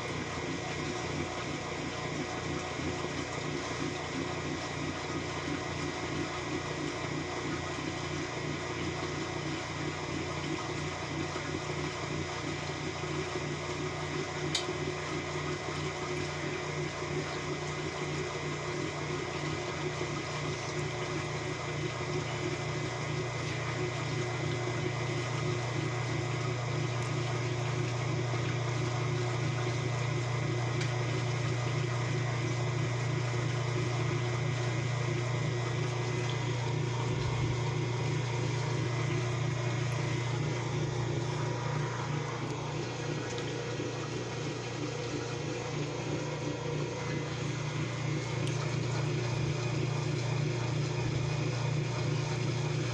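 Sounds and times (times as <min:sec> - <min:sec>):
washing machine motor hum: 0:00.0 - 0:52.9
water rushing: 0:35.7 - 0:51.3.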